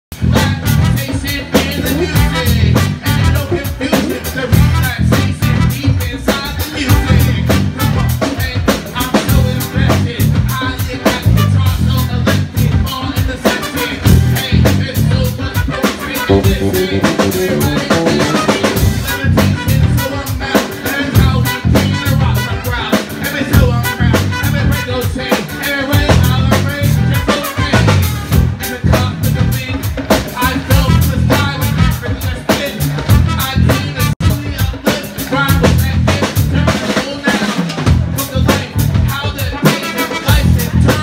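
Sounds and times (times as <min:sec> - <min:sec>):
bass: 0:00.0 - 0:41.0
drum kit: 0:00.1 - 0:41.0
guitar: 0:00.1 - 0:41.0
man singing: 0:00.1 - 0:41.0
trumpet: 0:00.3 - 0:08.1, 0:11.2 - 0:12.0, 0:13.4 - 0:14.5, 0:15.4 - 0:26.1, 0:26.7 - 0:28.8, 0:30.7 - 0:32.4, 0:33.0 - 0:34.7, 0:39.4 - 0:41.0.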